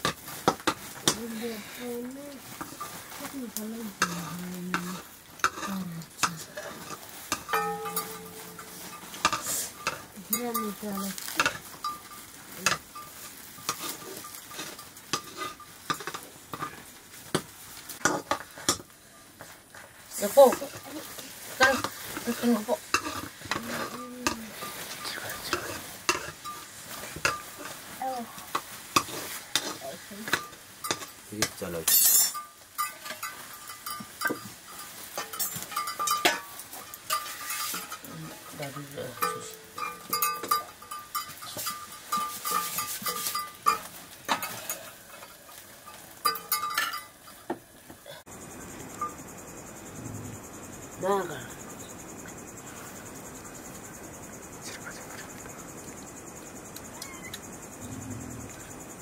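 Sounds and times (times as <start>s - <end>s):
grain sizzling: 0.0s - 50.0s
crickets chirping: 0.0s - 59.0s
metal ladle scraping a pot: 4.0s - 16.8s, 21.4s - 31.2s, 31.9s - 47.5s.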